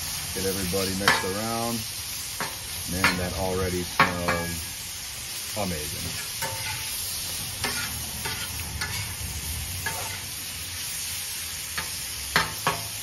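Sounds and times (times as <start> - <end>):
meat sizzling on a griddle: 0.0 - 13.0
metal spatula scraping and clacking: 0.9 - 1.6, 2.4 - 3.3, 6.1 - 7.0, 7.6 - 9.2, 9.8 - 10.3, 11.8 - 13.0.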